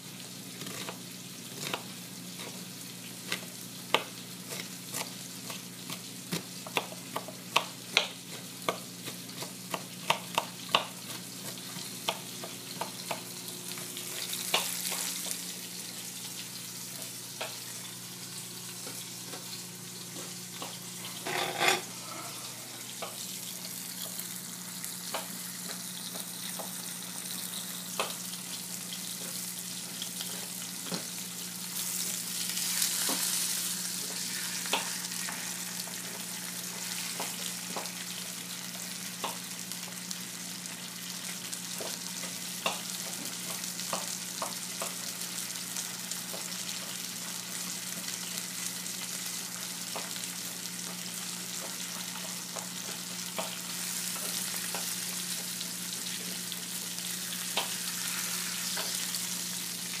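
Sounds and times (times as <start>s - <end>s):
food sizzling in a pan: 0.0s - 60.0s
utensils clinking on cookware: 21.2s - 22.3s.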